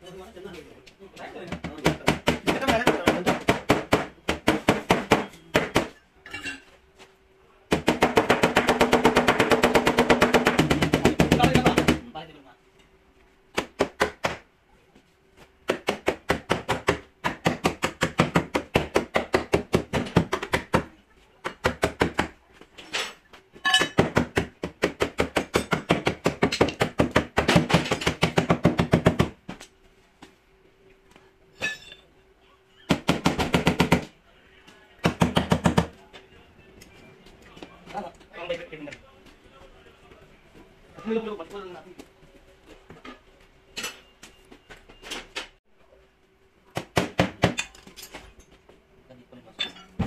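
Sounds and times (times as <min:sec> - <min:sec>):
hammer tapping on sheet metal: 0:07.7 - 0:12.1.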